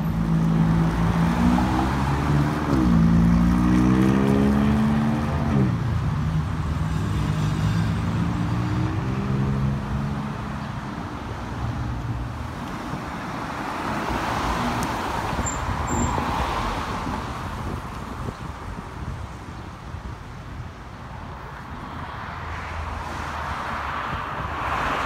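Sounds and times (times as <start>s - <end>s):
traffic noise: 0.0s - 25.0s
passing car tyre noise: 21.4s - 25.0s.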